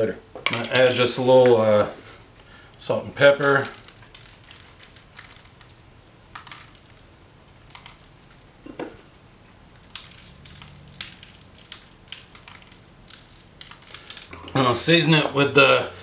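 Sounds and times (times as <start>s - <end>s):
seasoning clicks and crackles: 3.2s - 15.0s.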